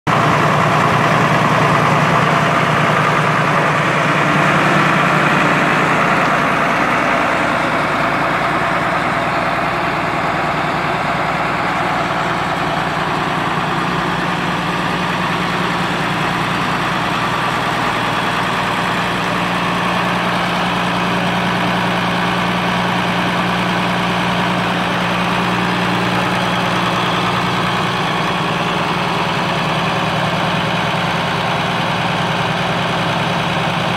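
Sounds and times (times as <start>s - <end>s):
tractor diesel engine idling: 0.0s - 33.9s.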